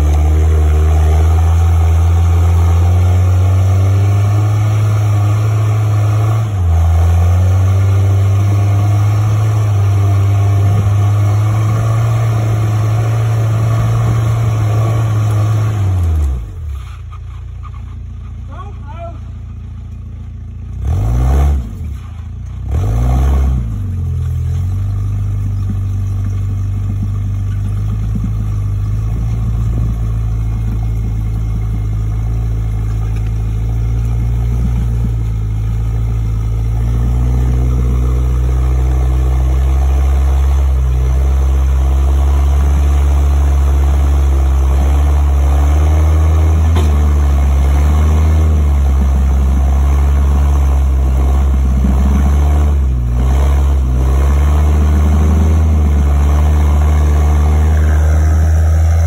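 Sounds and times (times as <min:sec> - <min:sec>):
buggy engine at low revs: 0:00.0 - 0:59.0.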